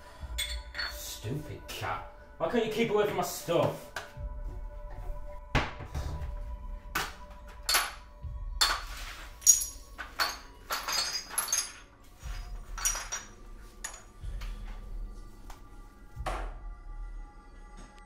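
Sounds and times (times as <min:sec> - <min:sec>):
low music drone: 0:00.0 - 0:18.0
ceramic shards clinking: 0:00.4 - 0:01.0, 0:08.6 - 0:14.2.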